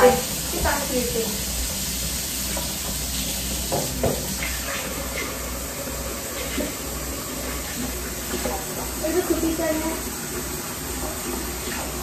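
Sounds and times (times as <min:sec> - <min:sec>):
faucet water pouring into sink: 0:00.0 - 0:12.0
knock: 0:03.7 - 0:04.3.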